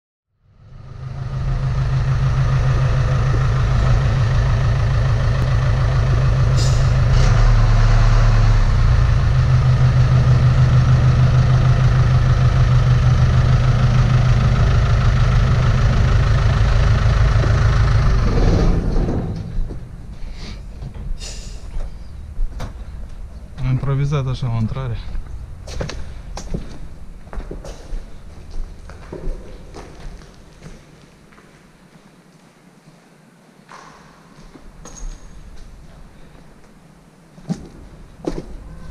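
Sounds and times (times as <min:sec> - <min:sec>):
diesel engine running: 0:00.4 - 0:20.3, 0:21.8 - 0:27.3.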